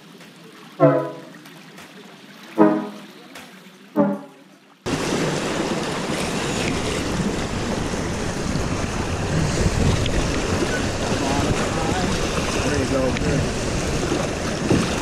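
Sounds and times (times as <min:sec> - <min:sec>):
music note: 0:00.8 - 0:01.4, 0:02.6 - 0:03.2, 0:04.0 - 0:04.5
river water rushing: 0:00.8 - 0:01.8, 0:02.4 - 0:03.2, 0:04.0 - 0:15.0
wind buffeting microphone: 0:04.9 - 0:15.0.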